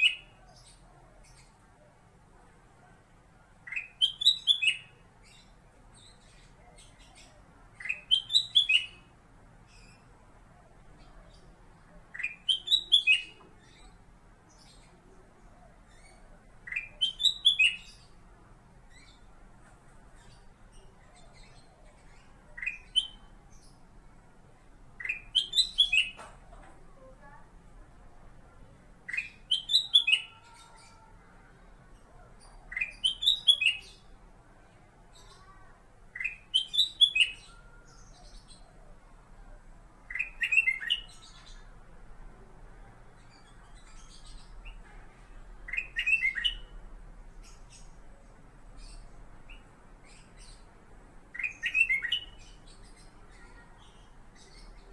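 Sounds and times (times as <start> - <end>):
bulbul singing: 0.0 - 1.9, 3.6 - 10.1, 10.9 - 18.2, 20.2 - 23.8, 25.0 - 26.4, 29.1 - 31.2, 32.4 - 34.2, 36.2 - 38.8, 40.1 - 41.8, 43.2 - 50.7, 51.3 - 54.9
bulbul whistling song: 3.7 - 5.0, 6.9 - 9.1, 12.1 - 14.0, 16.1 - 18.0, 22.5 - 23.3, 25.0 - 26.2, 29.1 - 30.3, 32.7 - 34.0, 36.2 - 37.7, 40.1 - 41.6, 45.7 - 46.8, 51.3 - 52.8.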